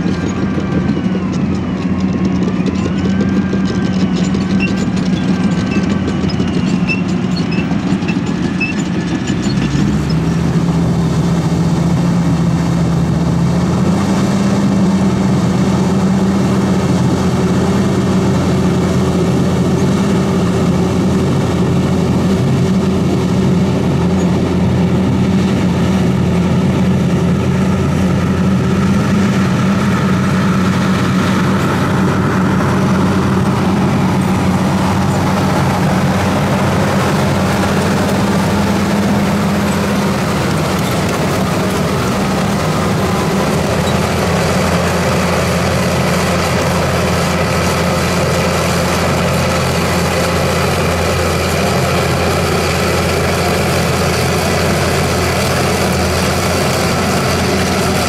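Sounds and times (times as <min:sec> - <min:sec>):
dozer diesel engine under load: 0:00.0 - 0:58.0
blade pushing soil: 0:17.7 - 0:58.0.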